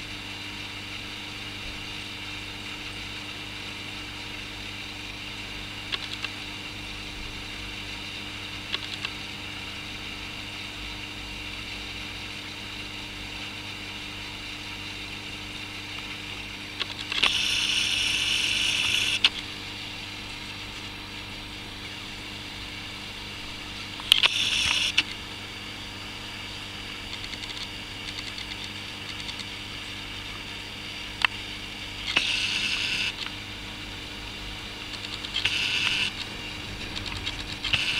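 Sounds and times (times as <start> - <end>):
steady low hum: 0.0 - 37.9
camcorder zoom motor whirring: 16.9 - 19.4, 24.0 - 25.2, 32.0 - 33.3, 34.9 - 37.9
zoom motor click: 32.0 - 33.3.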